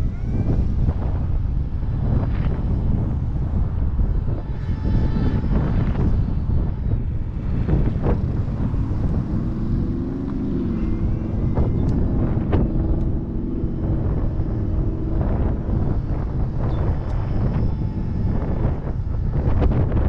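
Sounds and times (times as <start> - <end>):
low humming tone: 0.0 - 20.0
wind buffeting microphone: 0.0 - 20.0.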